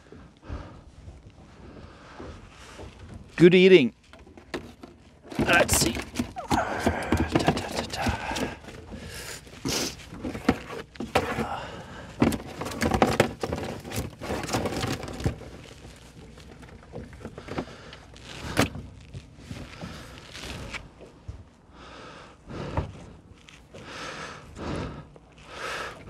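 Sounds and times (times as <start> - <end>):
knocks and clatter of gear: 2.1 - 21.4.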